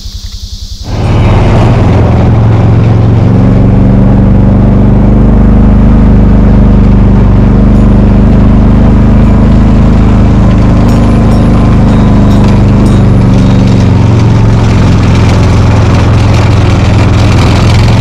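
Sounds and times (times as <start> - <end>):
utility vehicle engine running: 0.0 - 18.0.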